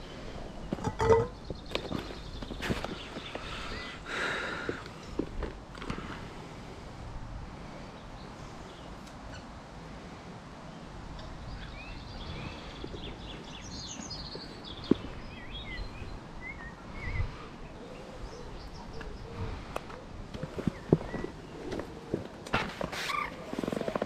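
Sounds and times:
small birds chirping and singing: 0:00.0 - 0:05.2, 0:10.7 - 0:22.2.

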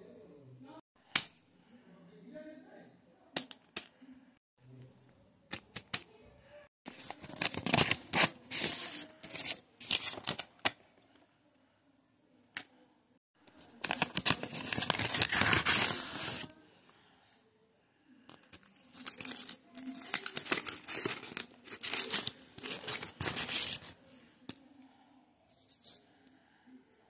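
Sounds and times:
paper rustling: 0:06.9 - 0:10.8, 0:13.5 - 0:16.5, 0:18.4 - 0:24.6.

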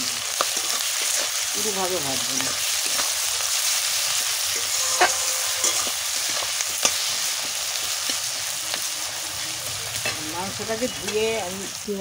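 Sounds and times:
onions sizzling in hot oil: 0:00.0 - 0:12.0
metal spatula scraping a pan: 0:02.8 - 0:08.2.

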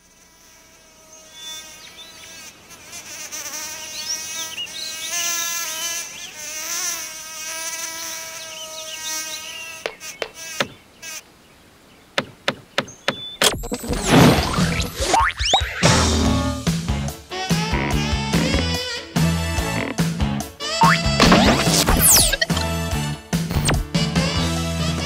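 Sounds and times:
bee buzzing: 0:00.0 - 0:11.2, 0:17.3 - 0:22.8, 0:23.5 - 0:23.9
sharp clicks: 0:12.2 - 0:14.0, 0:23.5 - 0:23.8.

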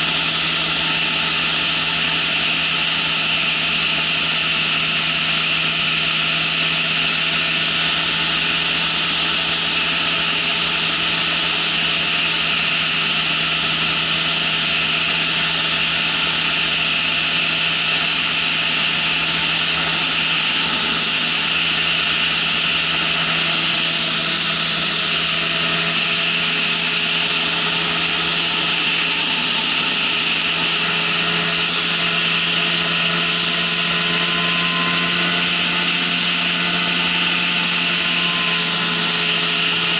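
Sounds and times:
engine and propeller drone: 0:00.0 - 0:39.9
loud rushing noise: 0:17.7 - 0:32.6.

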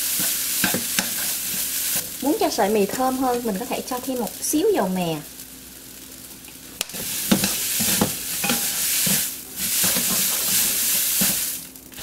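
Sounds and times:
noodles sizzling in hot oil: 0:00.0 - 0:12.0
utensils knocking against pan: 0:00.2 - 0:01.3, 0:07.3 - 0:09.2.

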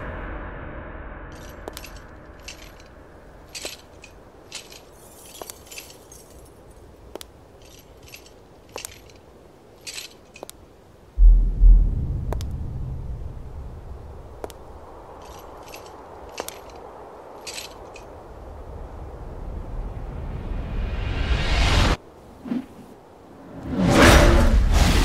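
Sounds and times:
low rumble: 0:00.0 - 0:04.1, 0:11.2 - 0:15.7
metal chain clinking: 0:01.4 - 0:10.6, 0:15.1 - 0:18.2.

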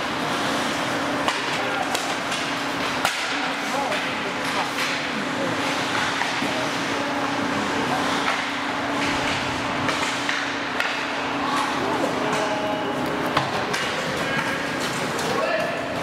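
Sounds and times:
steady low hum: 0:00.0 - 0:16.0
sticks and puck clacking: 0:01.2 - 0:06.7, 0:08.1 - 0:16.0
scattered voices: 0:01.3 - 0:16.0
skates scraping ice: 0:11.4 - 0:16.0.

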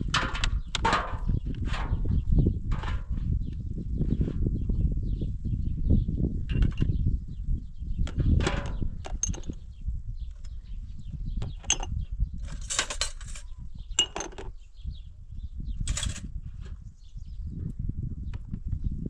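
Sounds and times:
dishes clinking and clattering: 0:11.6 - 0:14.5.

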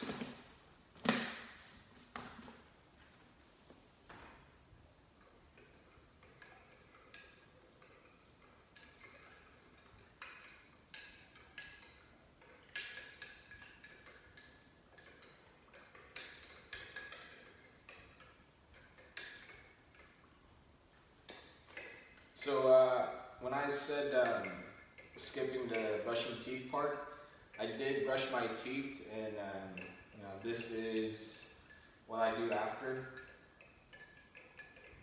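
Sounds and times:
spoon clinking against ceramic cup: 0:29.7 - 0:35.0.

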